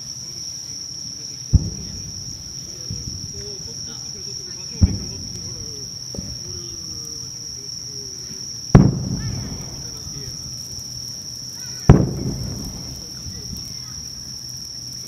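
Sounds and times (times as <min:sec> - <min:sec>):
insects chirring: 0:00.0 - 0:15.0
firework boom: 0:01.5 - 0:07.1, 0:08.7 - 0:10.9, 0:11.7 - 0:14.2.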